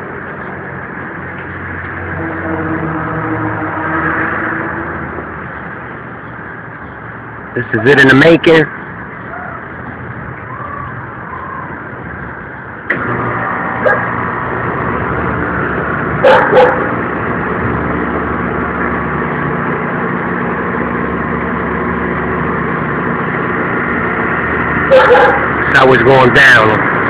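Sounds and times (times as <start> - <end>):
street traffic: 0.0 - 27.0
vehicle engine running: 0.0 - 27.0.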